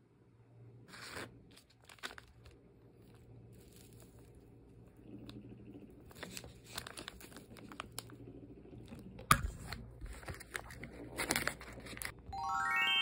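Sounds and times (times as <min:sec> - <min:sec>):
wrapper crinkling: 0:01.5 - 0:04.3, 0:06.1 - 0:08.1.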